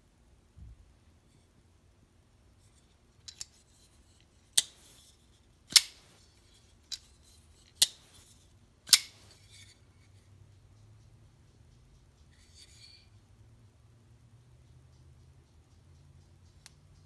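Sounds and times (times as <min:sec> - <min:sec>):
knife blade flicking open and closed: 0:04.6 - 0:05.1, 0:05.7 - 0:06.2, 0:07.8 - 0:08.3, 0:08.9 - 0:09.7.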